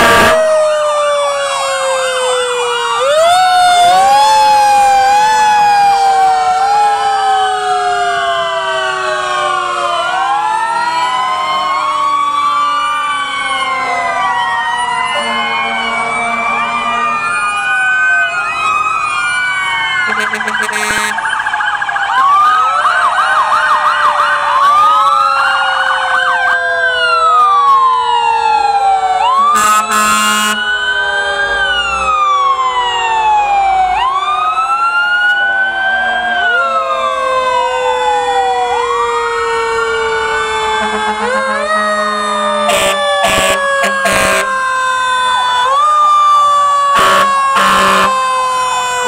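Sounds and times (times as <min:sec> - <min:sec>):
horn blasts: 0:00.0 - 0:00.5, 0:15.2 - 0:17.3, 0:20.1 - 0:21.3, 0:29.4 - 0:30.6, 0:40.8 - 0:41.7, 0:42.6 - 0:44.5, 0:47.0 - 0:48.2
fire truck sirens wailing: 0:00.0 - 0:49.0
long falling siren tone: 0:00.0 - 0:49.0.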